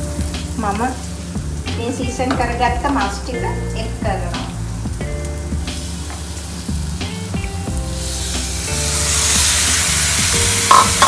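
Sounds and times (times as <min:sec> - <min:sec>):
chicken sizzling in hot fat: 0:00.0 - 0:11.0.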